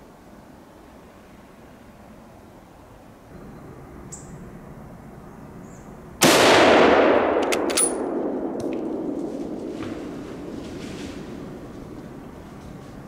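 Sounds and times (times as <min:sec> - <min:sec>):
rifle shot with rolling echo: 0:06.2 - 0:10.6
sharp metallic clicks: 0:07.3 - 0:08.8.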